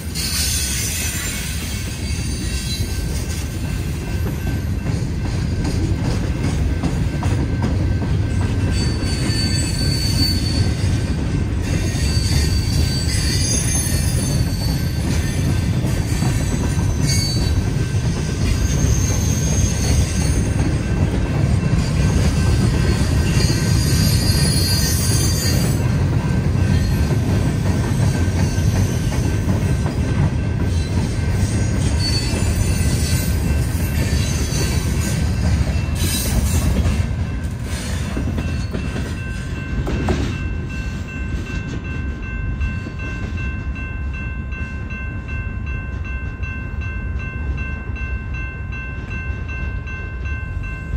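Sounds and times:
freight train wheels rumbling: 0.0 - 50.9
high-pitched wheel squeals: 8.7 - 10.9, 11.6 - 17.6, 18.4 - 20.5, 23.0 - 25.8, 30.7 - 35.2.

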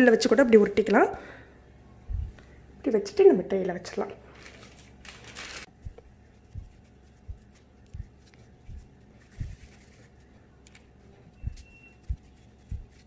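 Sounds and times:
dough rustling on baking tray: 4.3 - 13.0.

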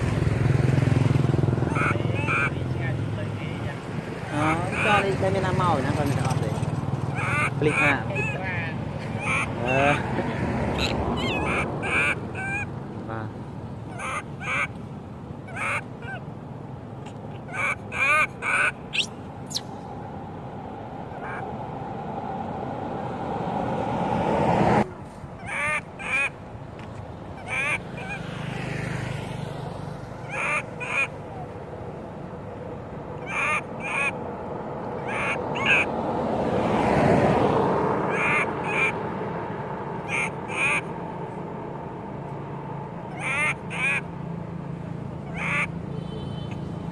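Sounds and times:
road traffic passing: 0.0 - 46.9
baby monkey crying: 1.6 - 2.6, 4.4 - 5.1, 7.1 - 10.0, 10.7 - 12.8, 13.9 - 14.7, 15.4 - 16.3, 17.0 - 19.6, 21.1 - 21.5, 25.4 - 26.4, 27.3 - 28.3, 30.2 - 31.2, 33.2 - 34.2, 35.0 - 35.9, 40.0 - 40.9, 43.1 - 44.1, 45.2 - 45.8.

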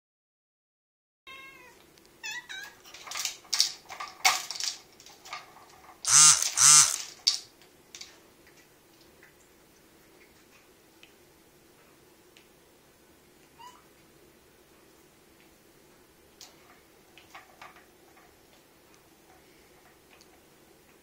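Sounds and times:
cat meowing: 1.3 - 2.8
rattling clicks from toy: 6.0 - 7.4.

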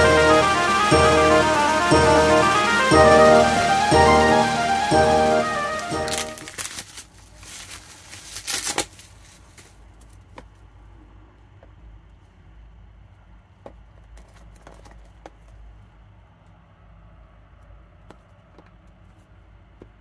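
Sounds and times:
bubble wrap crinkling: 5.8 - 10.3.

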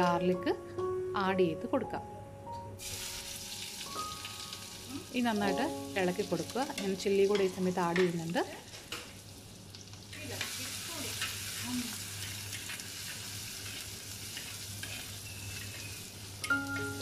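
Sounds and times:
food sizzling in hot oil: 2.8 - 17.0
steel spoon scraping a pot: 12.2 - 16.0.

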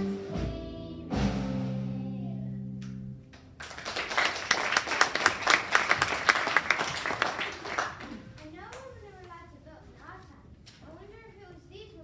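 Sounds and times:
audience applause: 3.6 - 8.1.

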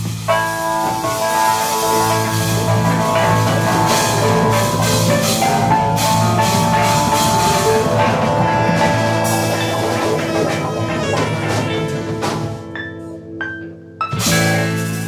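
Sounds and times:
drum kit playing: 0.0 - 13.0, 14.1 - 15.0
long held notes: 0.3 - 14.8.

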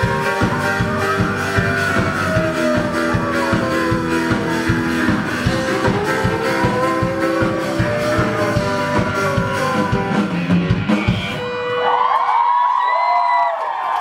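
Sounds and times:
person singing: 0.0 - 10.7
drumming: 0.0 - 12.2
live rock band playing: 0.0 - 12.4
audience screaming and cheering: 0.0 - 14.0.

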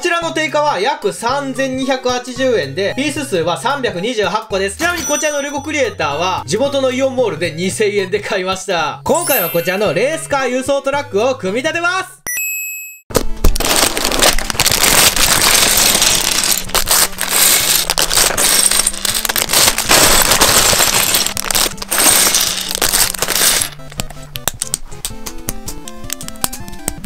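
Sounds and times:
background music: 0.0 - 12.3, 13.2 - 27.0
plastic bags crinkling: 13.5 - 24.8
plastic bricks clattering on table: 13.6 - 23.9.

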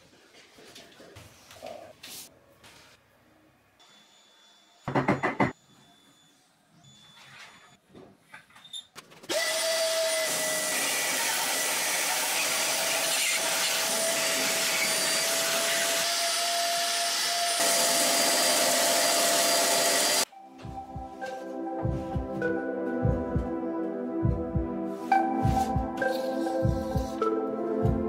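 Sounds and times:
band saw cutting wood: 9.3 - 20.3.

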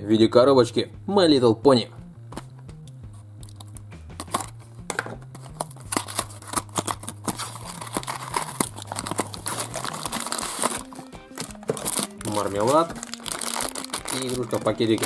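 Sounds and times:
quiet background music: 0.0 - 15.0
packaging crinkling: 5.3 - 15.0.

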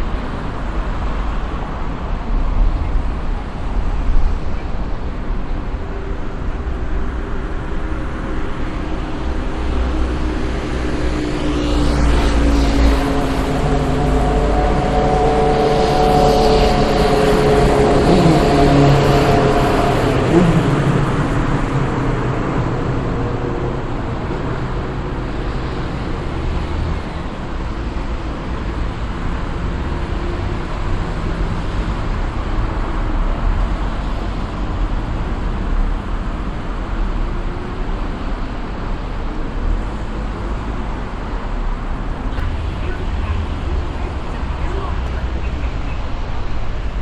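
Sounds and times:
rumbling background noise: 0.0 - 47.0
pitched drone: 4.3 - 28.1, 42.0 - 47.0.

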